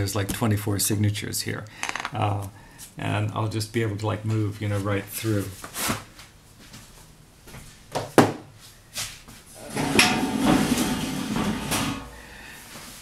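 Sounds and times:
drawer sliding and scraping: 9.6s - 12.2s.

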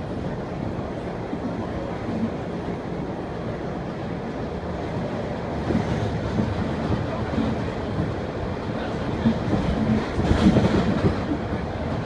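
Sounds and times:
subway train wheels rumbling: 0.0s - 12.0s.

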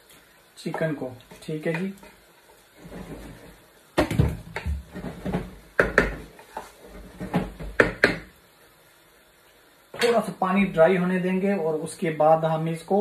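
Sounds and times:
wooden spoon knocking on frying pan: 5.8s - 6.3s, 7.3s - 8.3s.

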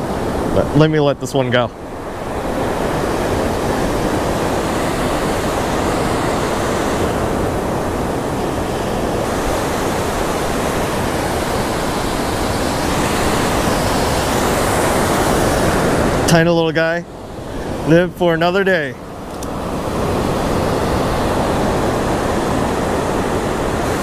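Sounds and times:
waves breaking: 0.0s - 24.0s.

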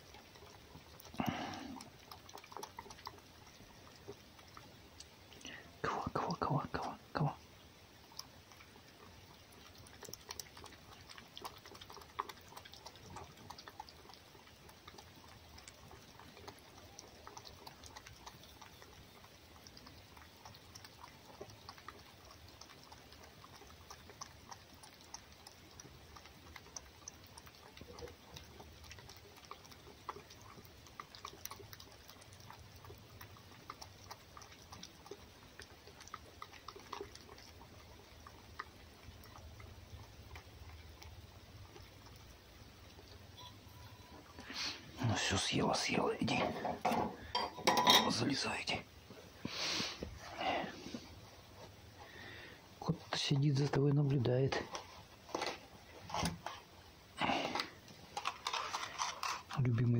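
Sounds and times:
animal lapping and chewing: 0.0s - 59.9s.

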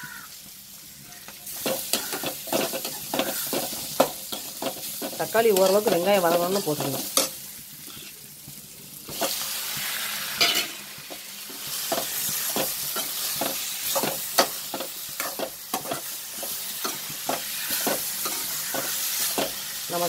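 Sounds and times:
food sizzling in oil: 0.0s - 20.0s
spatula scraping a metal pan: 1.5s - 8.2s, 11.6s - 19.7s.

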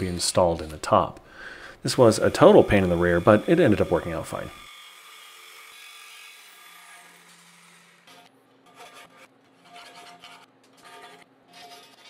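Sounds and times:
hand file rasping on steel: 8.6s - 12.0s.

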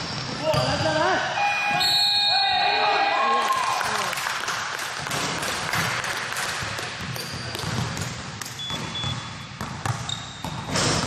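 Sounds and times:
basketball bouncing on wooden floor: 6.6s - 11.0s.

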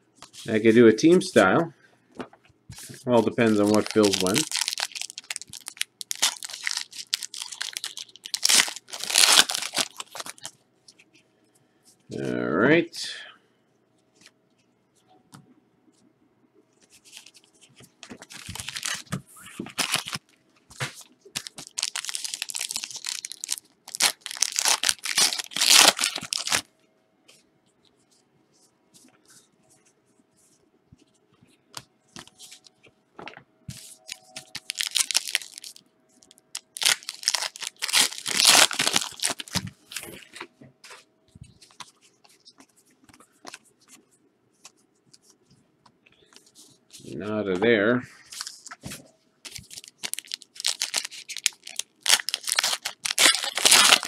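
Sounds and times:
plastic wrappers tearing and crinkling: 3.1s - 10.5s, 18.2s - 20.3s, 21.0s - 26.7s, 34.0s - 40.4s, 49.5s - 54.0s.

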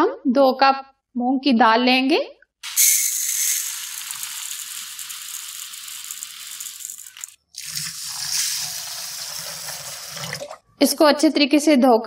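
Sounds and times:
lentils pouring into plastic bowl: 2.6s - 9.8s
tap water running into bowl: 2.6s - 10.6s.

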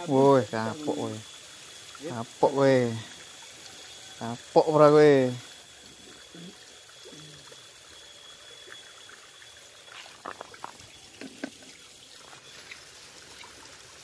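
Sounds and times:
stream trickling: 0.0s - 14.0s.

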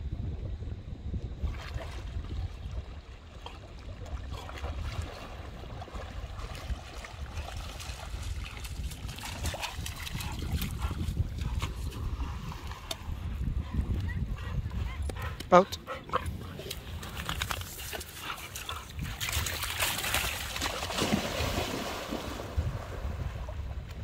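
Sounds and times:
wind rumble on microphone: 0.0s - 24.0s
dog splashing through water: 3.3s - 12.7s, 16.5s - 23.4s.

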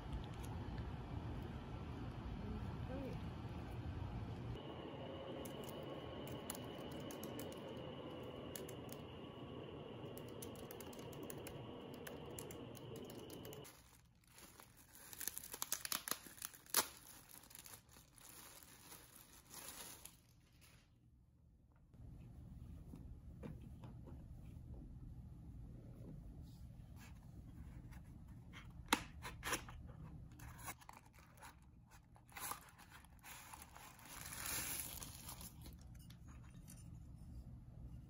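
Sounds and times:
low hum: 0.0s - 13.9s
laptop keyboard typing: 10.2s - 13.6s
packaging crinkling and tearing: 13.0s - 20.8s, 30.4s - 35.8s.

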